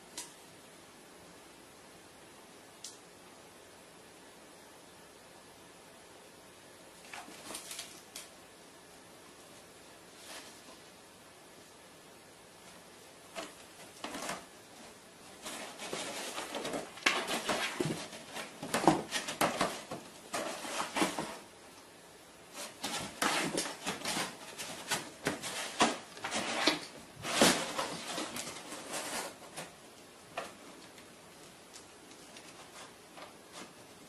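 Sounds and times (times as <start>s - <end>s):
cardboard box scraping and rustling: 15.4s - 21.5s, 22.6s - 29.7s.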